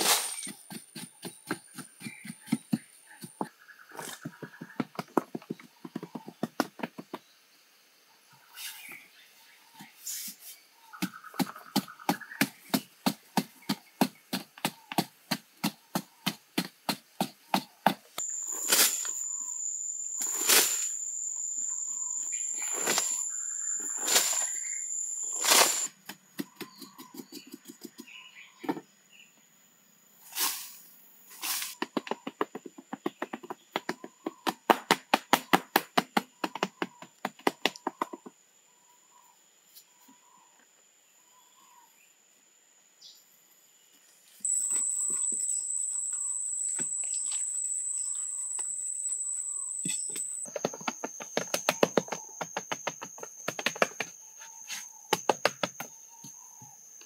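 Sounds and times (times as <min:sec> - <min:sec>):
high insect drone: 0:18.2 - 0:26.0, 0:44.4 - 0:57.0
hoe chopping into earth: 0:22.6 - 0:26.8.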